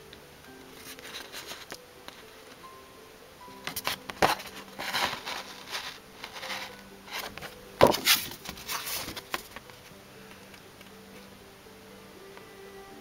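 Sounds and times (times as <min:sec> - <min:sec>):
paper and cardboard rustling: 0:00.8 - 0:01.7, 0:03.7 - 0:09.8.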